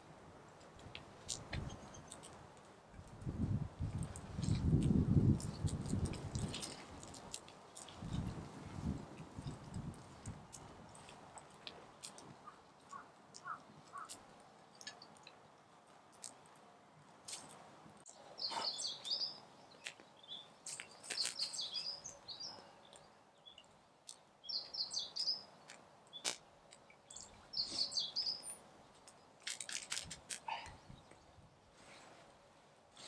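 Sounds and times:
sharp clicks and snaps: 0:09.5 - 0:16.6, 0:29.0 - 0:30.5
bird chirping: 0:18.1 - 0:29.2.

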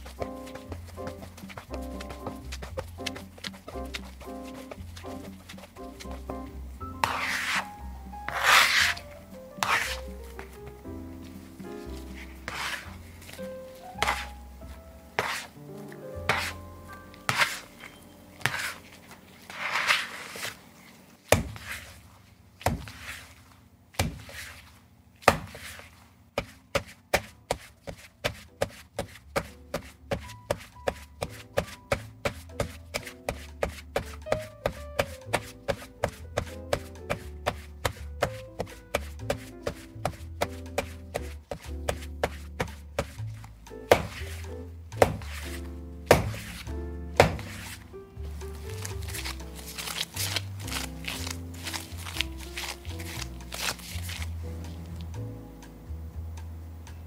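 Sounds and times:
background music: 0:00.0 - 0:20.6, 0:27.5 - 0:57.0
dough thumping on wooden board: 0:14.0 - 0:14.3, 0:21.3 - 0:21.9, 0:22.6 - 0:23.2, 0:24.0 - 0:24.6, 0:25.2 - 0:47.8.

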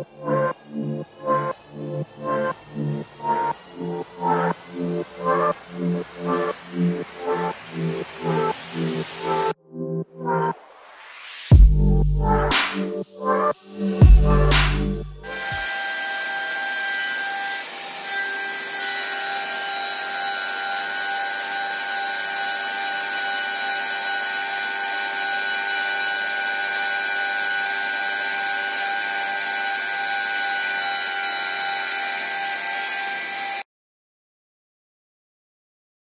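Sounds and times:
spindle whining while milling wood: 0:00.0 - 0:09.5, 0:15.3 - 0:33.6
air rushing from hose nozzle: 0:02.2 - 0:09.6.

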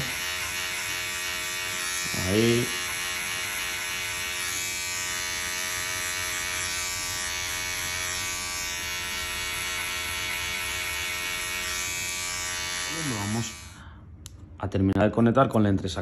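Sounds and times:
electric hair clipper cutting hair: 0:00.0 - 0:13.9.

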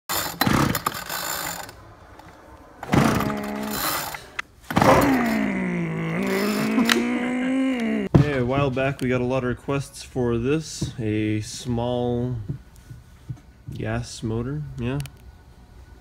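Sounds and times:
pull-starter turning engine over: 0:00.1 - 0:01.8.

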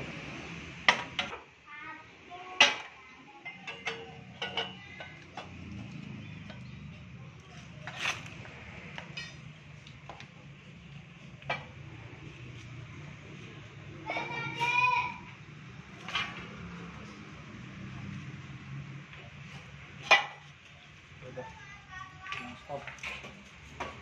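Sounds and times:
metal pipe clanking: 0:02.6 - 0:05.6, 0:09.0 - 0:09.6.

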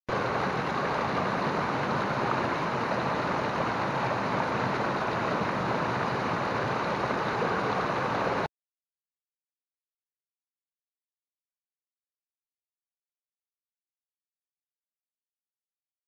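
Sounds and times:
waterfall running over rocks: 0:00.1 - 0:08.5.

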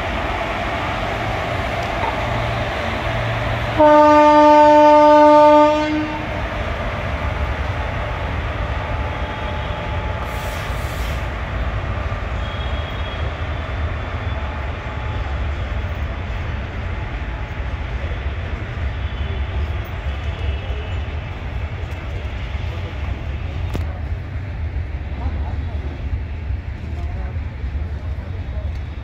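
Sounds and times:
train wheels rumbling on rails: 0:00.0 - 0:29.0
locomotive horn: 0:03.8 - 0:06.3.

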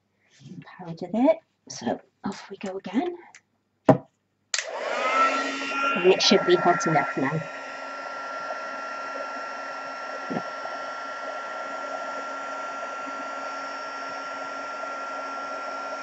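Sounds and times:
heat gun hissing and whining: 0:04.6 - 0:16.0.

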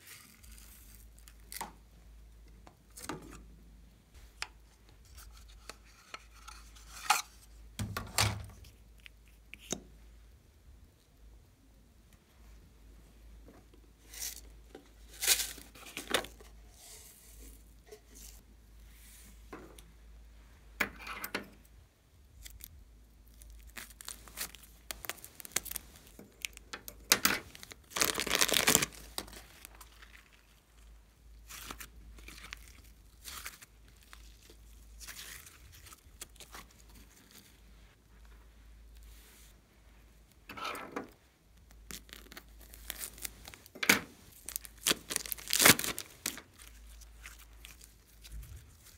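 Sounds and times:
plastic bags crinkling: 0:23.3 - 0:30.6, 0:41.9 - 0:48.9.

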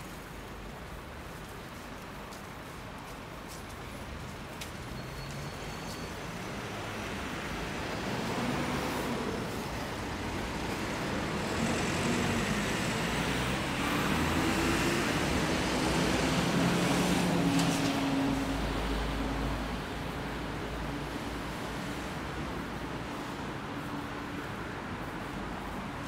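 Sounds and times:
vehicles passing on street: 0:00.0 - 0:26.0.

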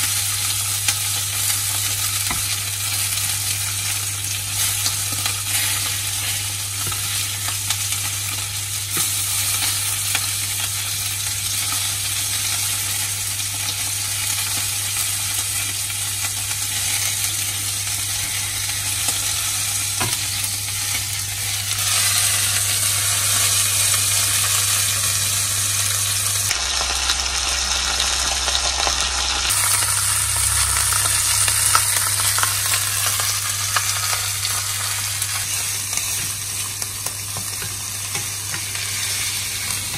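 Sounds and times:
food sizzling in a pan: 0:00.0 - 0:39.9
low hum: 0:26.3 - 0:34.1.

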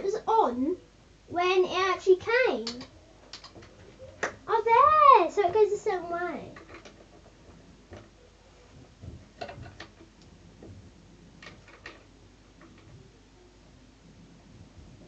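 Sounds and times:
light plastic clicks and knocks: 0:02.6 - 0:04.4, 0:06.6 - 0:08.2, 0:08.8 - 0:13.0.

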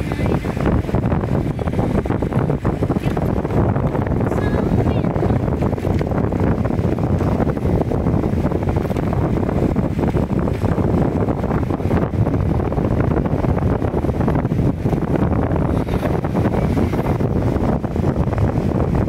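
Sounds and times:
motorbike road and engine noise: 0:00.0 - 0:19.0
wind buffeting microphone: 0:00.0 - 0:19.0.

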